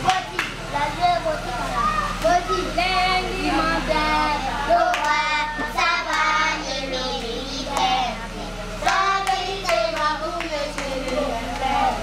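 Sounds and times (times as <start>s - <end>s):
hand claps: 0.0s - 0.6s, 8.8s - 11.7s
steady low hum: 0.0s - 12.0s
children singing: 8.8s - 12.0s.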